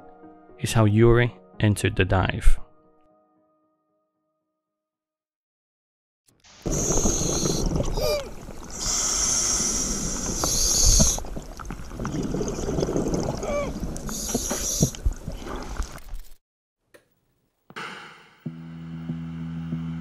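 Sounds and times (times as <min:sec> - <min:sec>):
burst of static: 0:06.5 - 0:11.1
diver breathing through regulator: 0:06.6 - 0:16.0
bubbling exhalations: 0:06.6 - 0:16.2.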